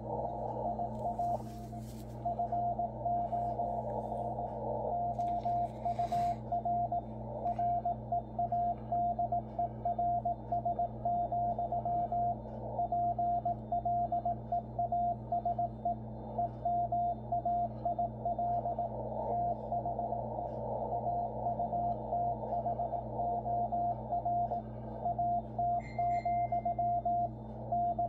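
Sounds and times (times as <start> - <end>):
radio band hiss: 0.0 - 7.4
faint low hum: 0.0 - 28.0
morse code beeps: 0.0 - 28.0.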